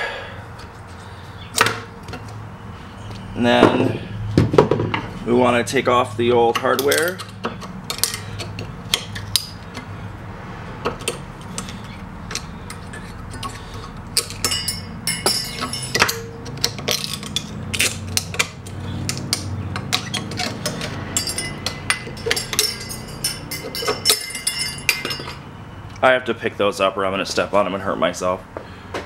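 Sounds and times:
small metal parts clinking: 6.7s - 9.9s, 11.0s - 25.5s.

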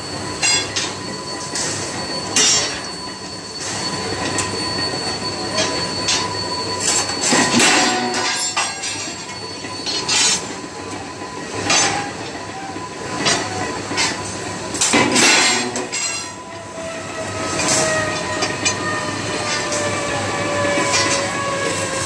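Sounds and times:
thin squeal: 0.0s - 10.6s.

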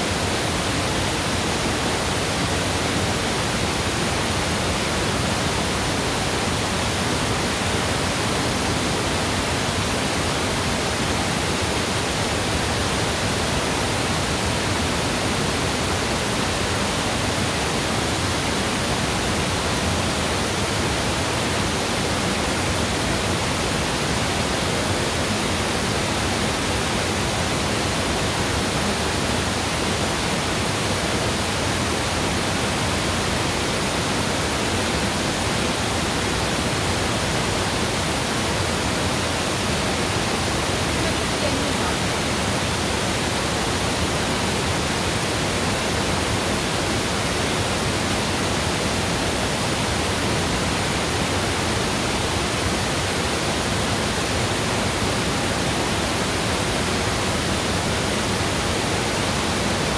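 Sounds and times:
waterfall rushing: 0.0s - 59.9s.

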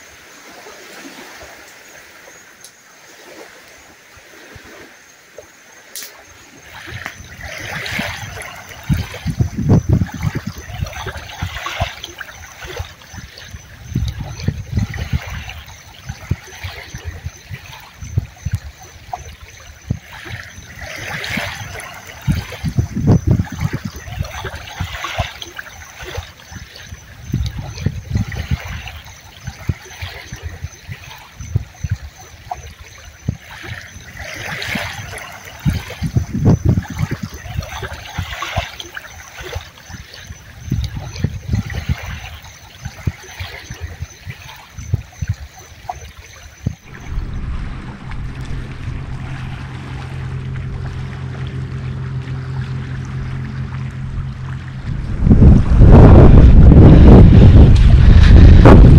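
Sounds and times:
small waves lapping: 0.0s - 58.9s
low thumps: 46.6s - 58.9s.

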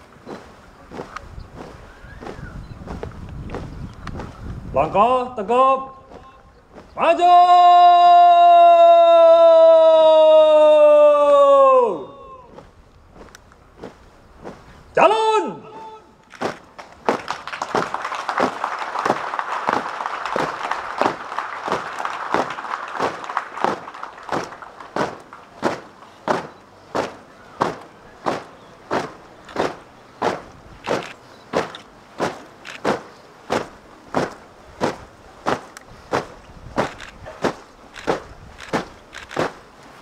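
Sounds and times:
background hiss: 0.0s - 40.0s
marching feet stamping in unison: 0.2s - 5.0s, 6.1s - 7.2s, 12.5s - 14.8s, 16.4s - 39.7s.

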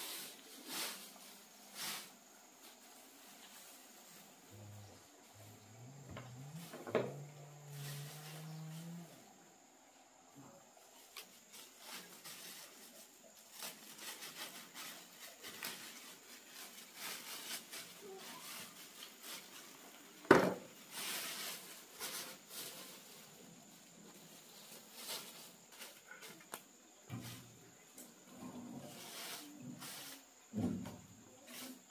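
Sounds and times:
plastic sack rustling: 0.0s - 4.5s, 11.0s - 26.2s.

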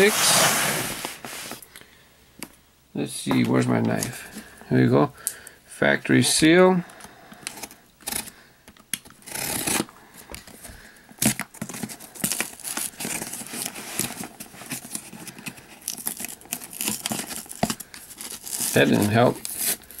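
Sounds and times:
knife scraping foil sticker: 9.2s - 9.9s, 15.8s - 20.0s
foil sticker crinkling and tearing: 11.2s - 20.0s.

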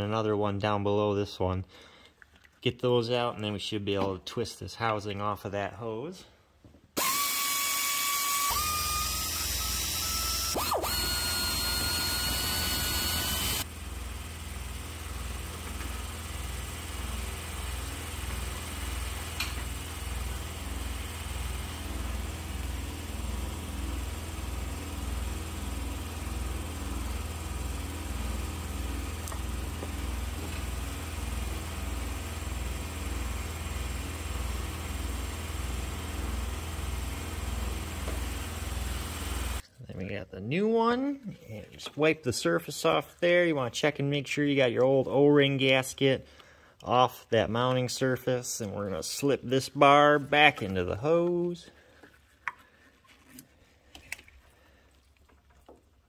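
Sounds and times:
power ratchet motor whining: 7.0s - 39.6s.

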